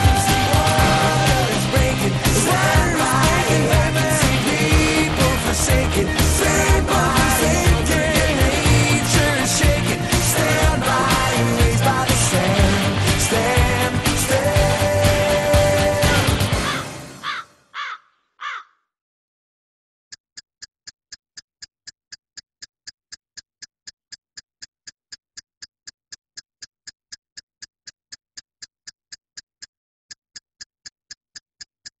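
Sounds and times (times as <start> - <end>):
even ticking clicks: 0.0 - 16.8, 20.3 - 32.0
music: 0.0 - 17.2.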